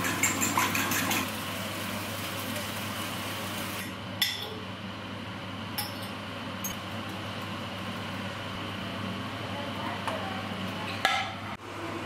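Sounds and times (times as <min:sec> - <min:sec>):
low kitchen hum: 0:00.0 - 0:12.0.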